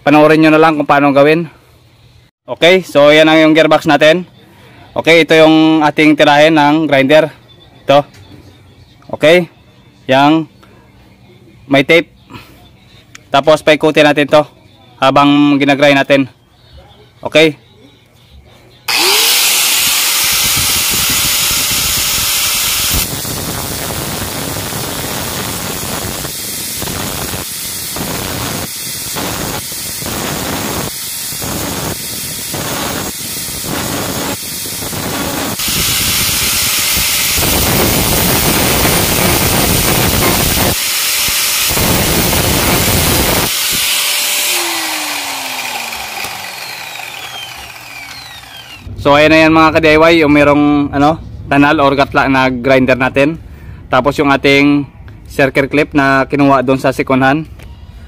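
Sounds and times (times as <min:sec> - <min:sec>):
angle grinder cutting metal: 0:18.9 - 0:48.9
grinder winding down whine: 0:18.9 - 0:48.9.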